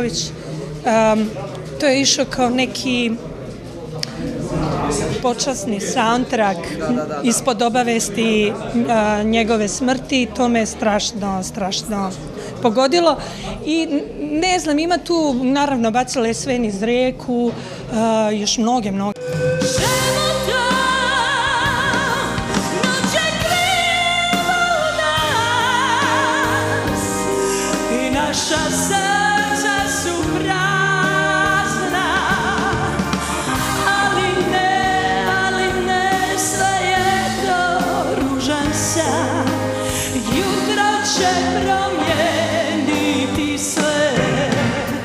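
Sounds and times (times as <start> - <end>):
woman singing with vibrato: 19.1 - 45.0
live band music: 19.2 - 45.0.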